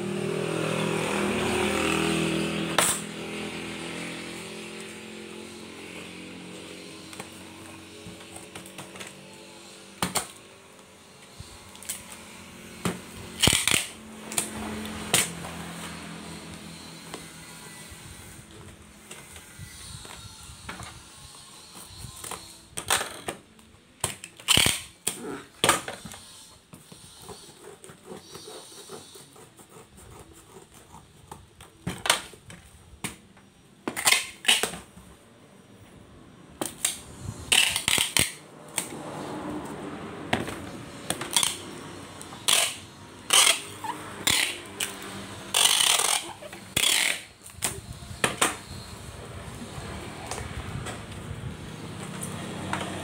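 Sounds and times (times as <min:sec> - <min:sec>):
packing tape ripping: 0:13.3 - 0:15.4, 0:24.1 - 0:26.1, 0:33.9 - 0:34.9, 0:36.6 - 0:39.0, 0:41.0 - 0:41.7, 0:42.3 - 0:47.8.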